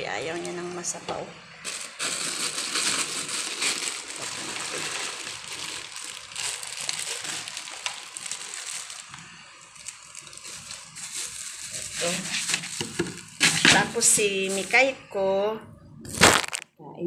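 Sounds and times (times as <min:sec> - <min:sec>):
dry kibble rustling: 0:01.6 - 0:14.8
plastic bag crinkling: 0:01.6 - 0:14.9, 0:16.1 - 0:16.7
wet food sloshing: 0:02.8 - 0:09.1.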